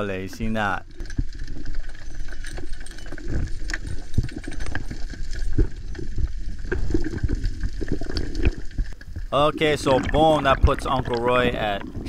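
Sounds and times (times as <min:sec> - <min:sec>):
underwater rumble of moving water: 0:03.0 - 0:12.0.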